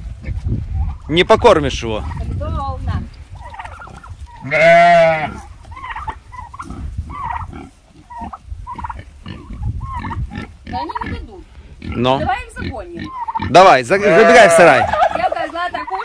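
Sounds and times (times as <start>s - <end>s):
farm animals bleating: 3.8s - 16.0s.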